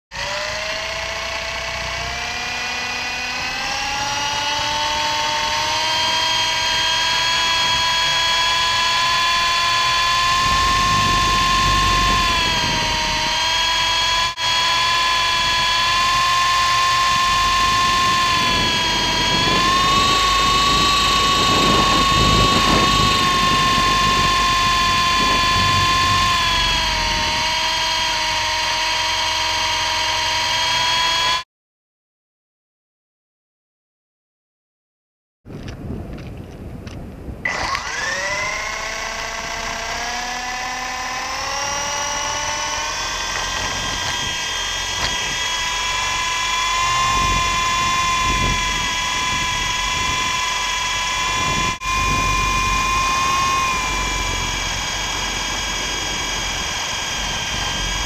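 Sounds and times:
electric helicopter motor whining: 0.1s - 31.4s, 37.4s - 58.0s
wind rumble on microphone: 3.9s - 14.3s, 15.1s - 28.2s, 35.5s - 38.6s, 42.6s - 58.0s.

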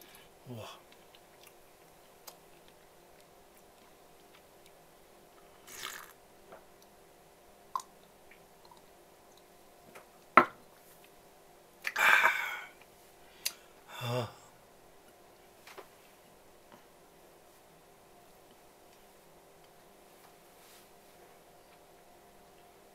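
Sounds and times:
person slurping a drink: 5.7s - 6.2s.

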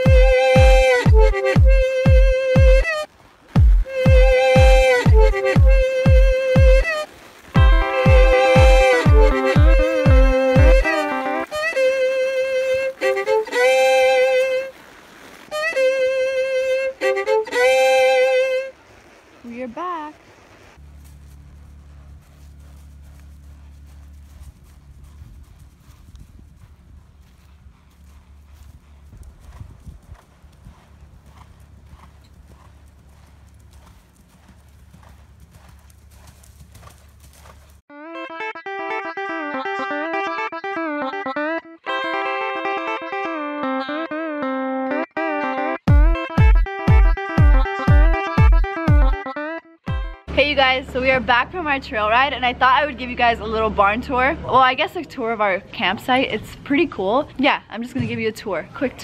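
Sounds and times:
plucked guitar music: 0.0s - 2.8s, 3.6s - 6.8s, 7.6s - 14.5s, 15.6s - 18.5s, 37.9s - 50.2s
solo violin melody: 0.0s - 3.1s, 3.8s - 14.7s, 15.5s - 18.7s, 37.9s - 50.2s
horse hoofbeats on sand: 0.0s - 16.0s, 20.8s - 37.8s.

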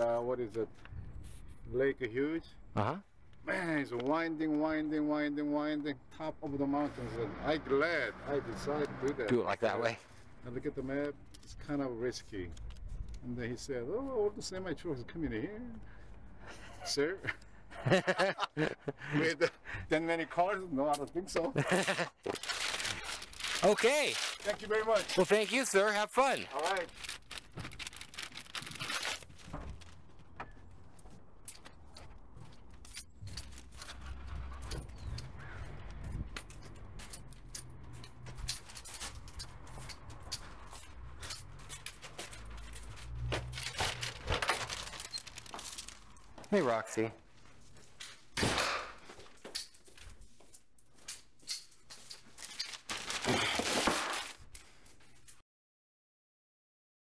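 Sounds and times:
plastic bag crinkling: 21.7s - 30.2s, 41.7s - 46.5s, 52.0s - 54.8s
rustling: 21.7s - 35.2s, 38.0s - 48.3s, 49.2s - 55.4s.

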